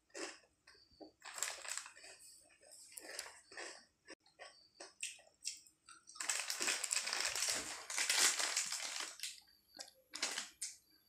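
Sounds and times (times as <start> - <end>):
crunching potato chip: 3.0 - 3.8, 6.1 - 9.4.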